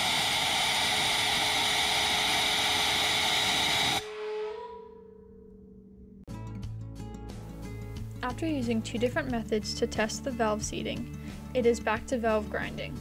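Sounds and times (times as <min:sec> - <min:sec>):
compressed air hissing: 0:00.0 - 0:04.1.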